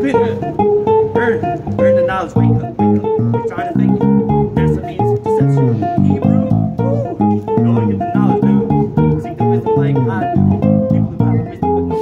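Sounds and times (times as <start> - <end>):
electric bass plucked notes: 0.0 - 12.0.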